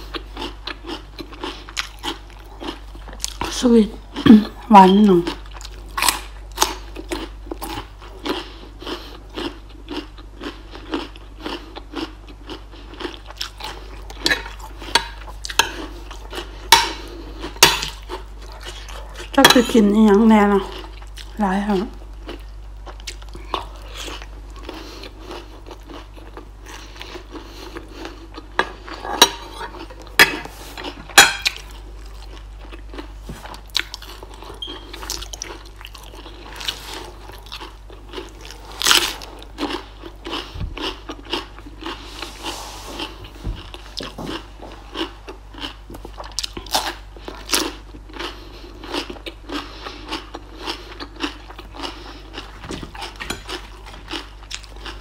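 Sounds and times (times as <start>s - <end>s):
chewing: 0.0s - 55.0s.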